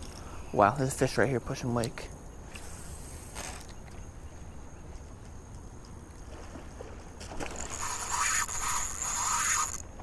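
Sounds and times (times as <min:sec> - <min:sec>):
low rumble of wind and water: 0:00.0 - 0:10.0
faint high whine: 0:07.4 - 0:10.0.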